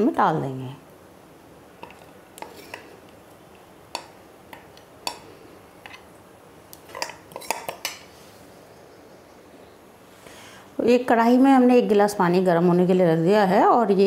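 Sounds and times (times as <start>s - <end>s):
metal spoon scraping a jar: 1.8s - 2.9s, 6.9s - 8.0s.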